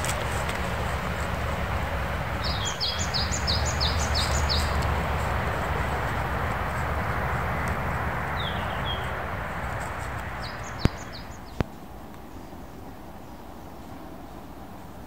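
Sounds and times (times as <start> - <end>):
steady rushing noise: 0.0 - 15.0
high bird chirps: 2.4 - 4.9, 8.4 - 9.2, 10.4 - 11.6.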